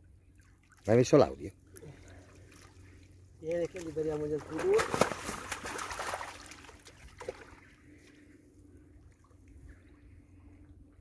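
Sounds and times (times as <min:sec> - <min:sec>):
water pouring off a net: 0:04.4 - 0:07.6.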